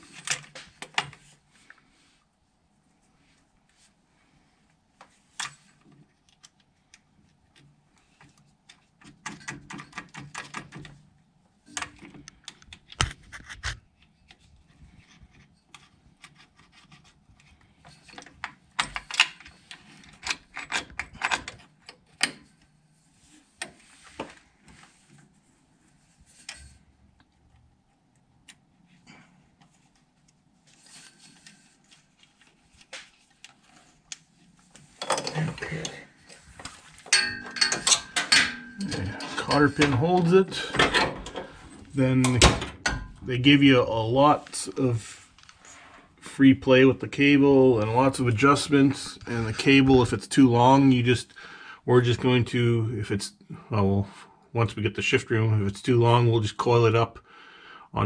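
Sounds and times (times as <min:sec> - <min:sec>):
metallic clicks and rattles: 0:18.0 - 0:22.6, 0:37.1 - 0:41.6.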